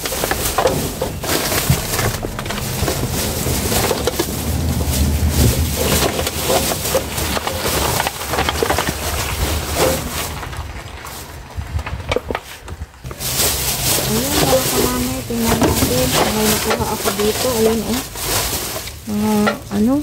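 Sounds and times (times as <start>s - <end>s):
low rumble: 0.0s - 20.0s
plastic bags crinkling: 0.0s - 20.0s.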